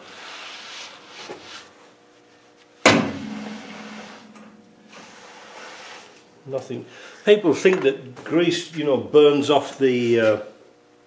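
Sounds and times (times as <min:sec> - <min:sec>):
ringing metallic knock: 0:02.9 - 0:04.7
cloth rubbing over brake disc: 0:03.6 - 0:06.4.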